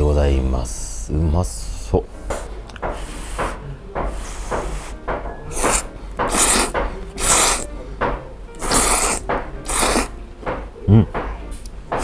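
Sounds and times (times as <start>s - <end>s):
person slurping noodles: 4.2s - 7.7s, 8.6s - 10.1s.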